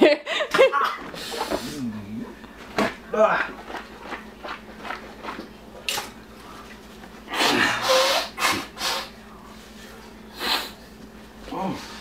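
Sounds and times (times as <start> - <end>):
nose snorts: 7.3 - 9.1, 10.4 - 10.8
man blowing his nose: 7.3 - 9.2, 10.3 - 10.8.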